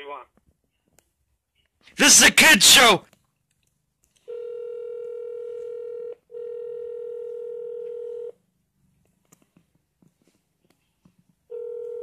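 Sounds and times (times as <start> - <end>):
steady telephone tone: 4.3 - 8.4, 11.5 - 12.0.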